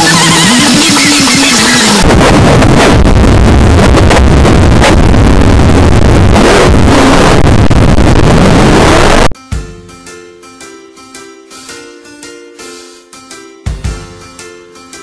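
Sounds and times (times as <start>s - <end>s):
distorted breakcore noise: 0.0s - 9.4s.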